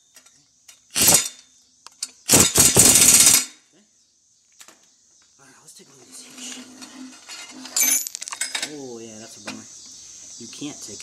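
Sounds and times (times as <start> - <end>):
power wrench running: 0.9 - 1.3, 2.3 - 3.5.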